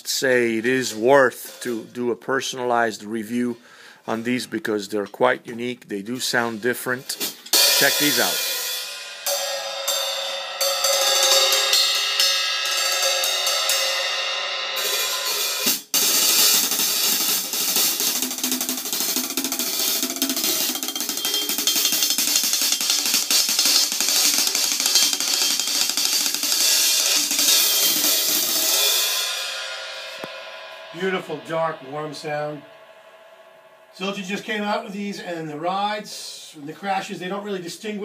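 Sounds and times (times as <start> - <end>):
hi-hat cymbals played with drumsticks: 0.8 - 2.0, 7.1 - 35.6.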